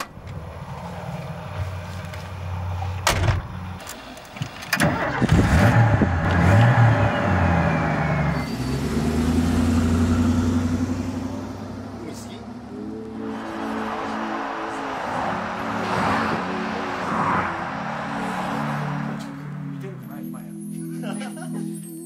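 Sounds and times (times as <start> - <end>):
car engine starting and revving: 4.5 - 19.4.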